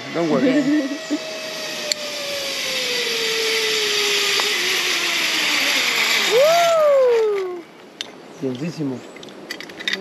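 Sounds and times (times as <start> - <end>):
zipline pulleys whining on cable: 0.0 - 7.7.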